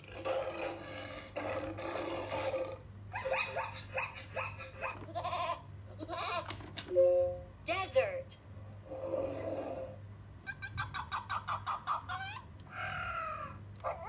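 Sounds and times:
rough roar-like animal call: 0:08.9 - 0:10.0.

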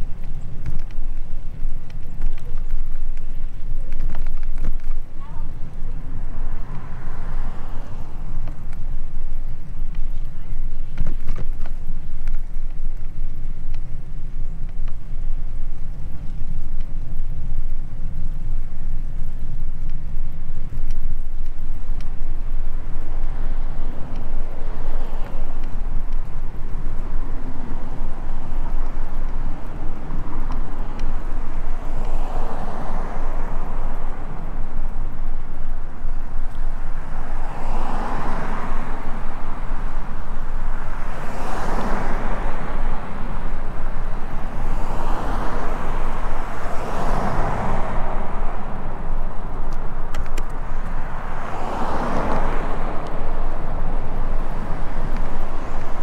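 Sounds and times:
wind rumble on microphone: 0:00.0 - 0:56.0
swell of passing noise: 0:22.8 - 0:56.0.

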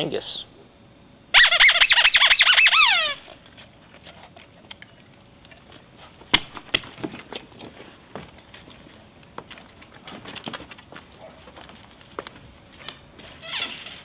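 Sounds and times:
squeaky dog toy squealing: 0:01.3 - 0:03.4, 0:13.4 - 0:14.0
dog scuffling: 0:03.3 - 0:14.0.

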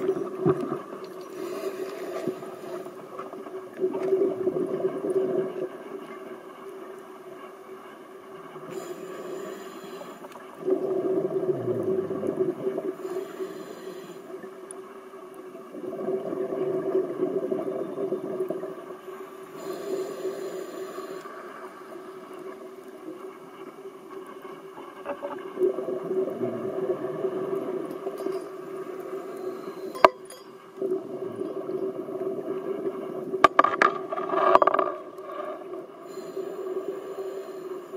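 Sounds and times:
exhaled bubbles underwater: 0:03.7 - 0:06.3, 0:10.6 - 0:13.1, 0:15.6 - 0:19.0, 0:24.9 - 0:30.0, 0:30.8 - 0:36.3
hissing regulator breaths: 0:08.7 - 0:10.4, 0:13.0 - 0:14.4, 0:19.2 - 0:21.9, 0:36.0 - 0:37.9.

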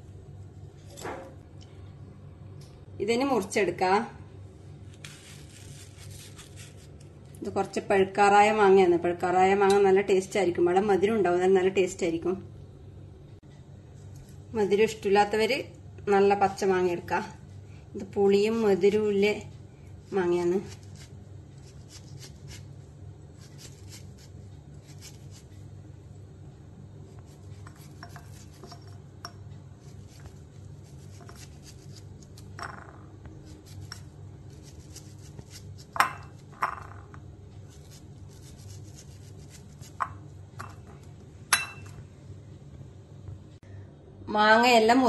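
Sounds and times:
knife cutting mango: 0:04.9 - 0:07.0, 0:20.6 - 0:22.7, 0:23.4 - 0:25.4, 0:27.3 - 0:28.9, 0:29.8 - 0:32.4, 0:33.4 - 0:36.0, 0:37.7 - 0:40.0
low hum: 0:24.2 - 0:45.0.

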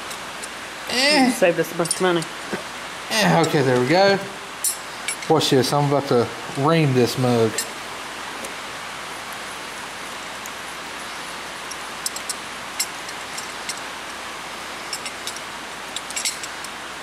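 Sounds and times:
rain on a tin roof: 0:00.0 - 0:17.0
light metal clicks: 0:14.9 - 0:16.8.

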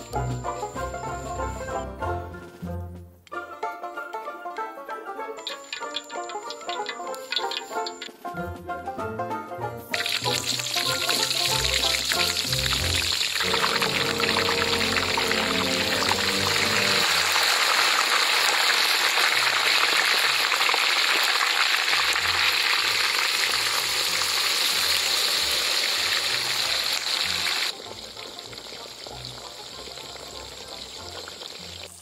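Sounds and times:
hot oil sizzling and bubbling: 0:05.4 - 0:08.2, 0:09.9 - 0:32.0.

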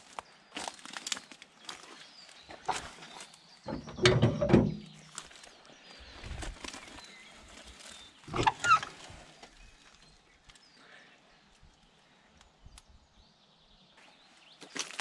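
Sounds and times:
knocking and rustling: 0:03.7 - 0:05.0.

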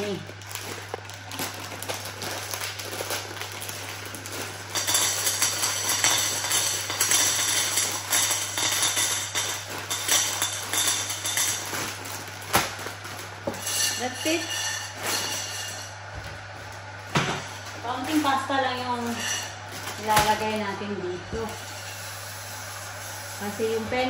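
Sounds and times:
plastic bag tearing and crinkling: 0:00.0 - 0:23.5
pasta rattling into metal pan: 0:01.4 - 0:16.0.

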